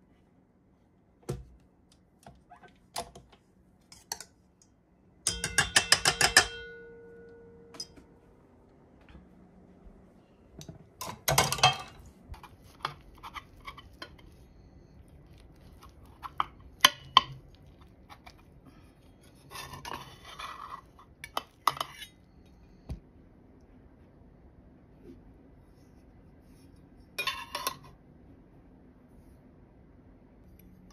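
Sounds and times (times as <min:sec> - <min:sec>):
pan and plate clinking: 0:05.3 - 0:08.0, 0:11.0 - 0:14.2, 0:27.2 - 0:27.9
spatula scraping skillet: 0:11.5 - 0:22.2, 0:27.1 - 0:27.9.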